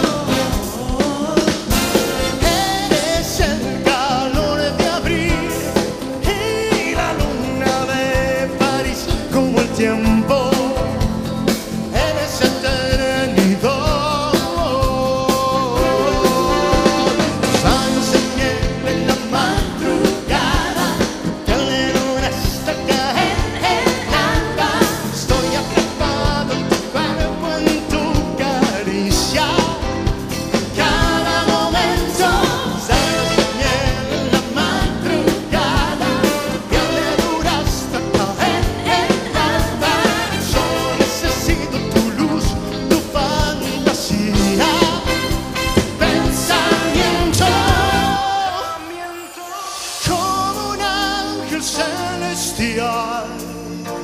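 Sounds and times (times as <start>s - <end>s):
congas: 0.0s - 54.0s
live band music: 0.0s - 54.0s
man singing: 0.0s - 54.0s
trumpets: 1.7s - 3.2s, 32.5s - 37.8s, 44.5s - 50.2s.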